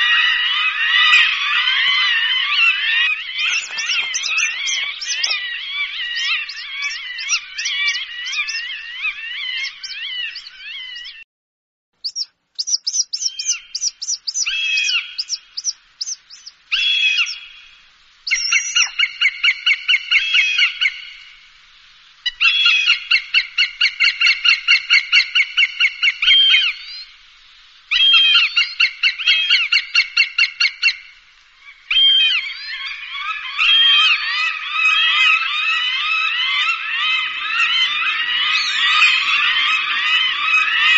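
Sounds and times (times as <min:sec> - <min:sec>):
hawk calling: 0:00.0 - 0:11.2, 0:12.0 - 0:21.2, 0:31.7 - 0:40.9.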